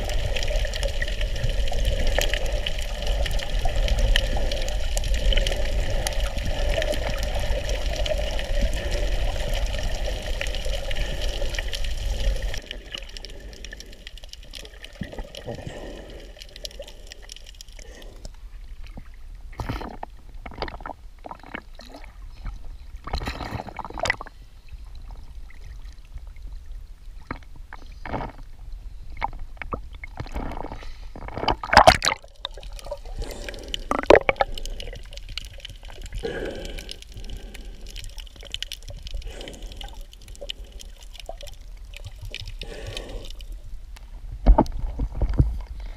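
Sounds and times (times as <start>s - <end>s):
water rushing: 0.0s - 17.3s, 31.5s - 43.7s
water sloshing and gurgling: 0.0s - 45.9s.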